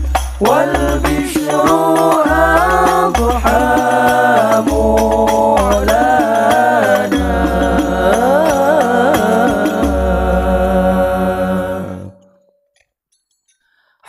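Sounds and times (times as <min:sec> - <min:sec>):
frame drums slapped: 0:00.0 - 0:10.0
boys singing long notes: 0:00.4 - 0:12.4.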